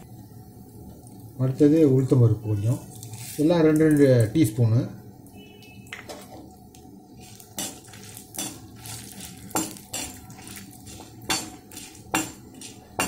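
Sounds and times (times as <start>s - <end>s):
metal spoon scraping a pan: 7.2s - 13.0s.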